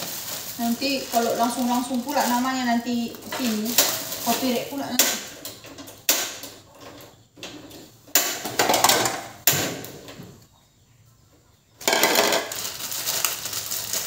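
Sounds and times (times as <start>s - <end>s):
crackly rustle: 0.0s - 7.9s, 11.8s - 14.0s
noisy clatters: 11.8s - 14.0s.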